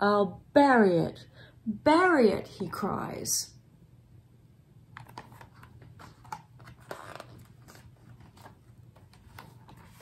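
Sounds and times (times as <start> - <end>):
book pages rustling: 5.0 - 10.0.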